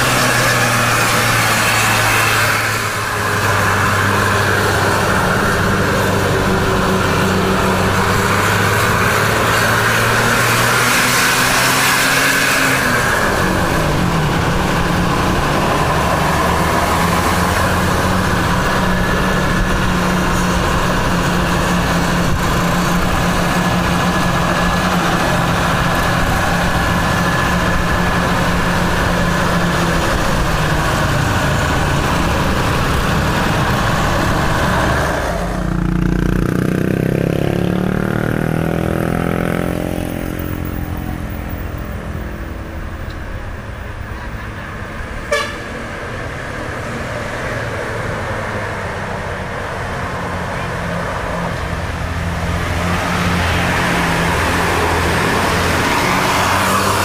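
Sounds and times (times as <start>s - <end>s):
bus diesel engine pulling uphill: 0.0s - 57.0s.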